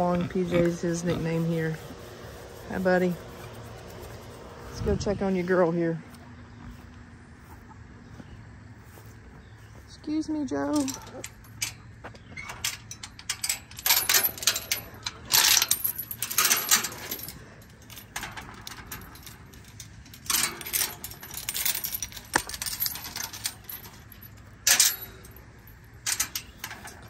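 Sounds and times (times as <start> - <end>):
metal gate rattling: 0.0 - 4.2, 10.5 - 27.0
chain and latch clinking: 10.6 - 27.0.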